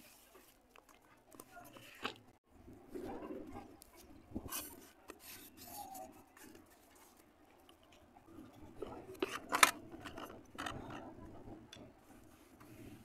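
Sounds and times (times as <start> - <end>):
wet clay squishing and scraping: 0.0 - 2.4.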